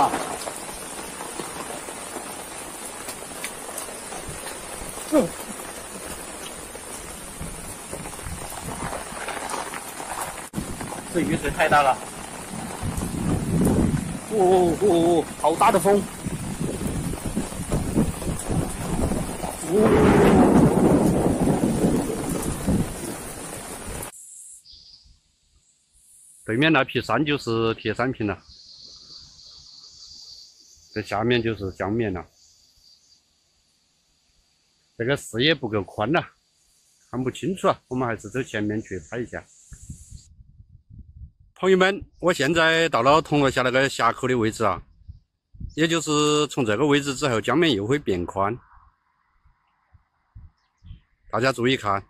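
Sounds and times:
heavy rain pouring: 0.0s - 24.1s
wind on microphone: 6.9s - 24.1s, 39.0s - 42.2s, 44.7s - 45.8s, 48.0s - 51.1s.

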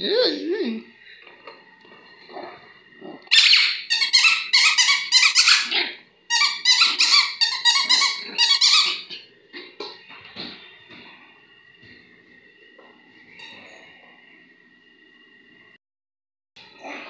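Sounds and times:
rubber ball squeaking: 3.3s - 9.1s.

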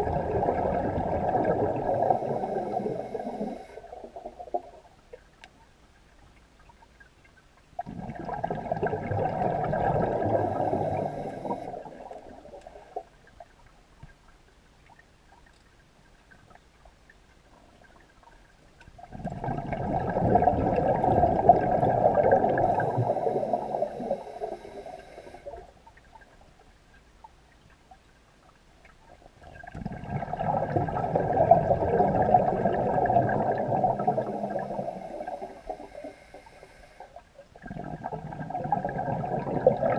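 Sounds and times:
underwater exhaled breath bubbling: 0.0s - 4.8s, 7.8s - 13.1s, 19.0s - 25.7s, 29.5s - 39.9s.

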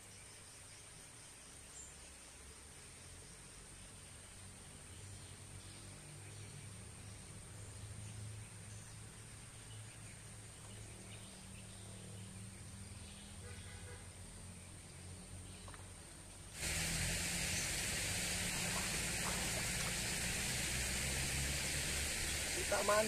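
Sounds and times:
high-pitched whine: 16.6s - 23.0s
water rushing in a channel: 16.6s - 23.0s.

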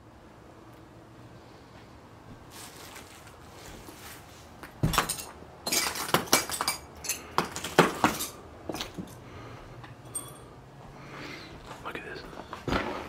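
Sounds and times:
footsteps crunching over debris: 2.3s - 6.7s, 10.8s - 13.0s
sharp cracks and clinks: 4.7s - 10.6s.

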